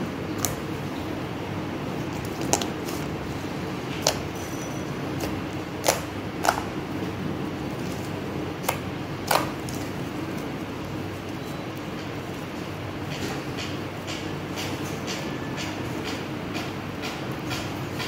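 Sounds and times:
slime being squished by hand: 2.1 - 3.1, 4.0 - 4.3, 5.2 - 6.8, 7.8 - 10.5.

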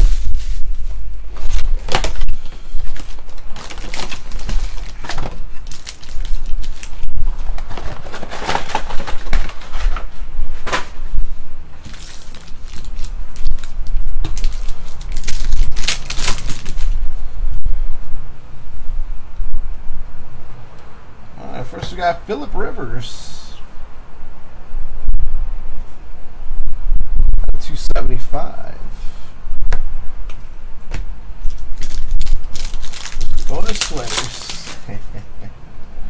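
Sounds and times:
steady low hum: 0.0 - 36.0
foil packs crinkling: 1.4 - 10.1, 11.8 - 17.0, 31.5 - 35.0.

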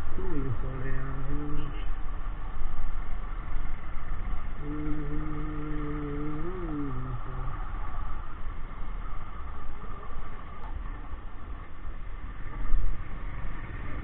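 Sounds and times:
held low tone: 0.0 - 1.9, 4.6 - 8.0.

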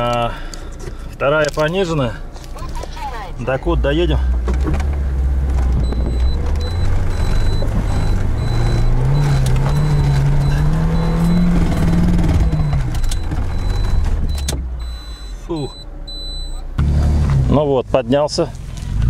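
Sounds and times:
car engine revving under load: 3.4 - 19.0
high repeating beep: 5.8 - 16.6.

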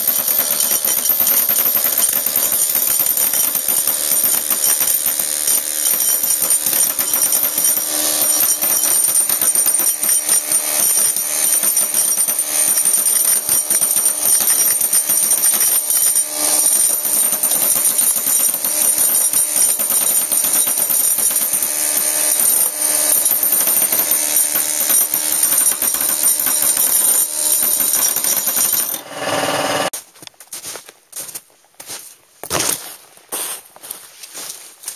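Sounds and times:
air hammer chattering: 0.0 - 29.9.

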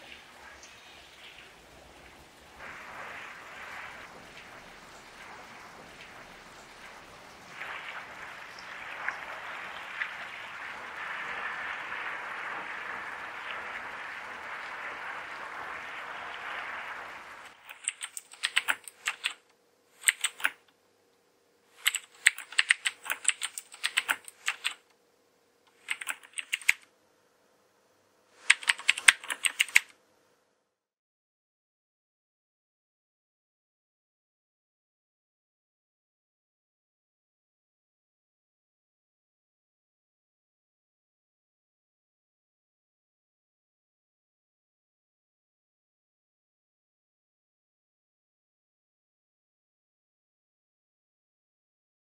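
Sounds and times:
water hissing: 0.0 - 19.2
faint hum: 0.0 - 30.8
fast keyboard typing: 17.5 - 19.4, 20.0 - 20.6, 21.8 - 24.8, 25.8 - 26.8, 28.4 - 29.9.

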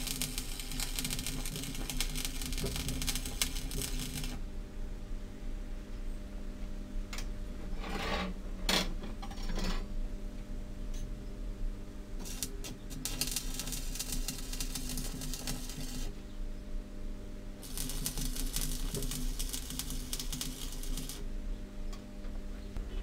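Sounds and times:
arc welder crackling: 0.0 - 4.4, 12.2 - 16.1, 17.6 - 21.3
steady low hum: 0.0 - 23.0.

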